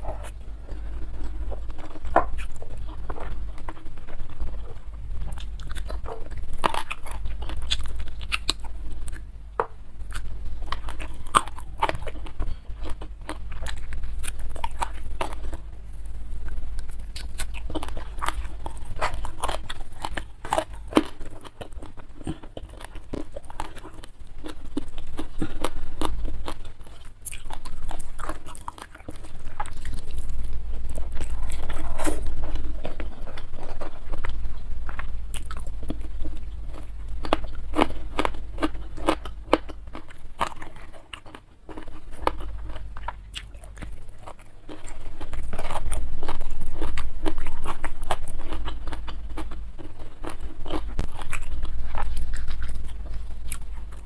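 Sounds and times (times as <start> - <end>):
wet chewing: 0.0 - 54.0.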